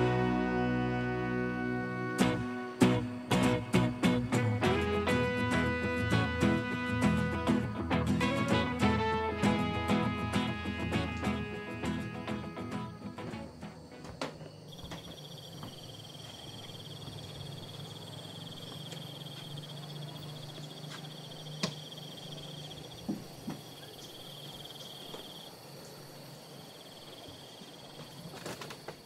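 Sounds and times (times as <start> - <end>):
insects trilling: 11.2 - 29.0.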